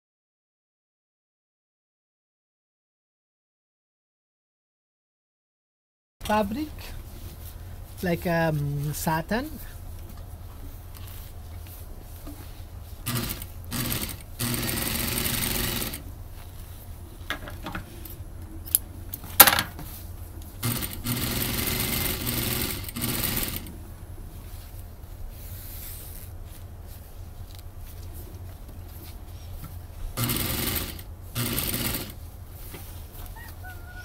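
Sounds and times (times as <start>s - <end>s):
sewing machine stitching: 13.1s - 16.0s, 20.6s - 23.7s, 30.2s - 32.2s.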